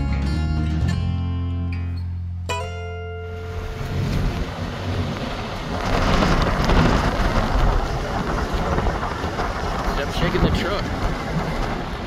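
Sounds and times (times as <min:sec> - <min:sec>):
wind buffeting phone microphone: 0:03.9 - 0:12.0.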